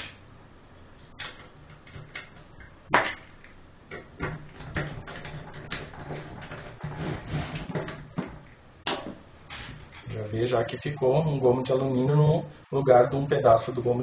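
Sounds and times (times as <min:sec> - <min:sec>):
scraping: 0:04.5 - 0:08.2.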